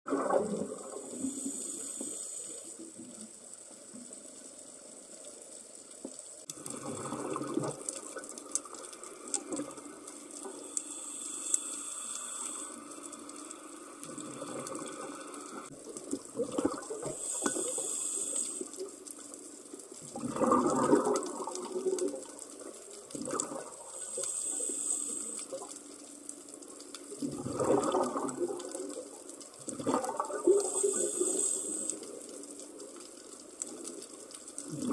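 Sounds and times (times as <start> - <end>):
rush of exhaled bubbles: 0.1 - 2.2, 6.5 - 8.3, 14.1 - 18.8, 20.0 - 25.7, 27.1 - 32.2, 34.6 - 34.9
hissing regulator inhale: 1.0 - 2.9, 10.4 - 13.3, 17.1 - 18.9, 23.9 - 25.7, 30.6 - 32.4.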